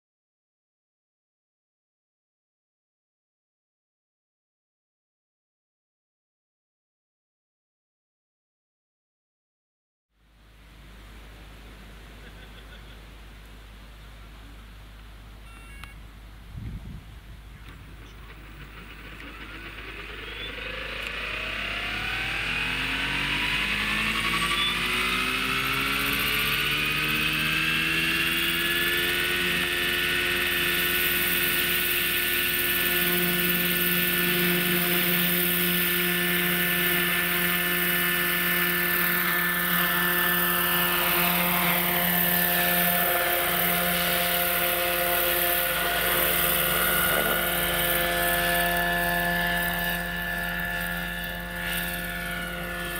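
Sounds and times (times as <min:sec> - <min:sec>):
model helicopter motor whine: 0:17.4 - 0:52.9
rotor blades swishing: 0:17.9 - 0:52.9.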